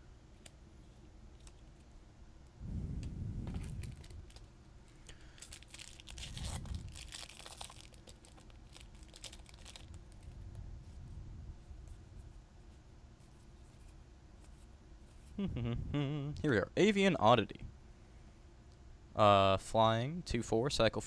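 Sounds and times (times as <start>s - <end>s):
foil wrapper tearing and crinkling: 3.5s - 4.5s, 5.2s - 10.4s.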